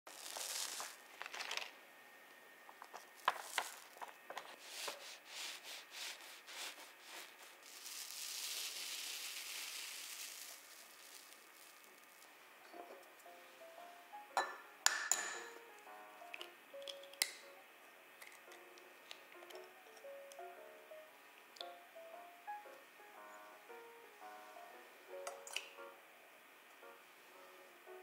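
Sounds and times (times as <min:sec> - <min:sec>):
parchment rustling: 0:00.1 - 0:01.8, 0:02.6 - 0:13.2
sponge cake tearing: 0:00.1 - 0:01.8, 0:04.6 - 0:12.2.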